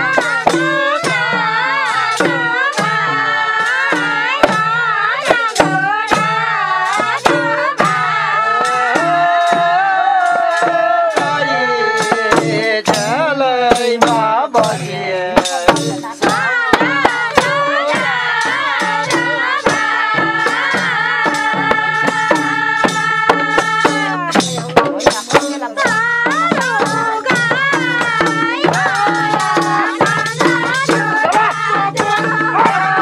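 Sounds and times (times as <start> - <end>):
barrel hand drum: 0.0 - 33.0
voices singing folk song: 0.0 - 33.0.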